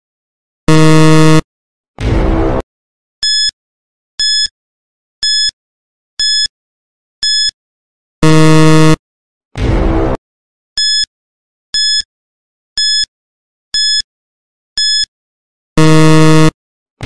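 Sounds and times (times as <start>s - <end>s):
short high electronic beeps: 0.7s - 1.4s, 8.2s - 9.0s, 15.8s - 16.5s
loud buzzer: 0.7s - 1.5s, 8.2s - 9.0s, 15.8s - 16.6s.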